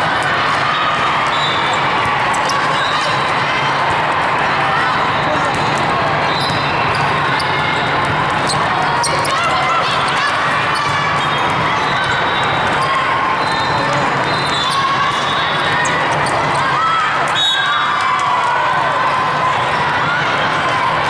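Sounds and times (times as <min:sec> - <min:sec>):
crowd chatter: 0:00.0 - 0:21.0
sneakers squeaking on court: 0:05.1 - 0:16.7.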